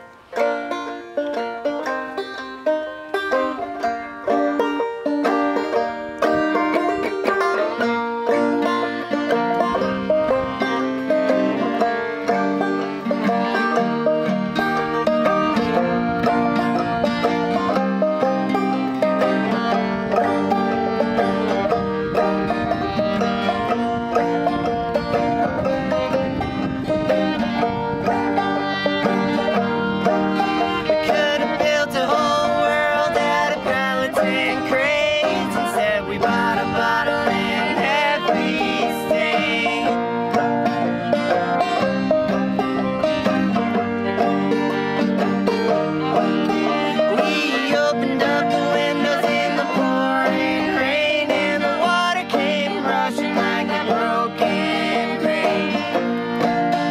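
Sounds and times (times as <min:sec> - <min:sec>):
acoustic guitar: 0:00.0 - 0:56.9
banjo: 0:00.0 - 0:56.9
fiddle: 0:00.0 - 0:56.9
person singing: 0:28.3 - 0:43.4, 0:45.4 - 0:56.9.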